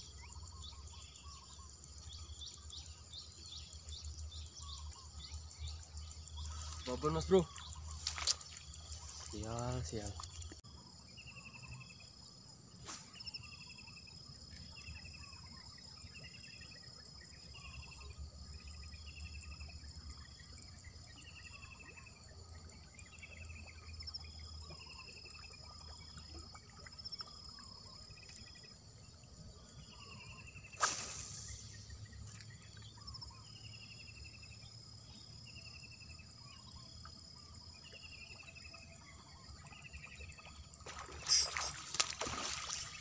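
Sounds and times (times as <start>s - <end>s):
insects buzzing: 0.0s - 15.4s, 26.1s - 43.0s
pulsed insect chirp: 0.0s - 43.0s.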